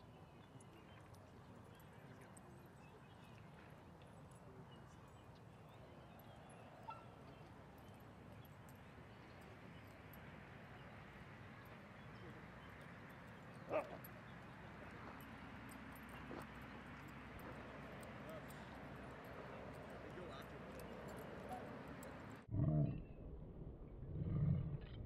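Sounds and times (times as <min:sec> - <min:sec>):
faint outdoor background noise: 0:00.0 - 0:25.0
dog barking: 0:06.8 - 0:07.1, 0:13.7 - 0:14.0.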